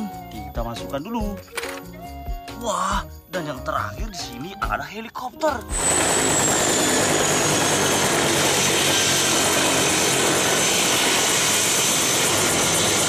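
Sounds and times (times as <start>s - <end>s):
helicopter rotor noise: 5.7s - 13.0s
high turbine whine: 5.7s - 13.0s.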